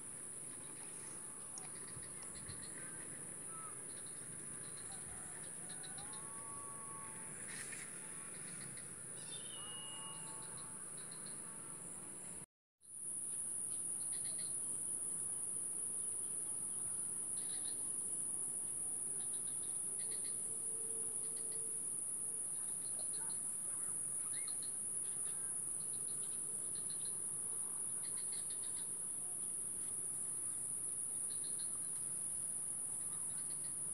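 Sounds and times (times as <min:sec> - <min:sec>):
high-pitched insect drone: 0:08.4 - 0:12.0
short insect chirps: 0:13.3 - 0:14.7.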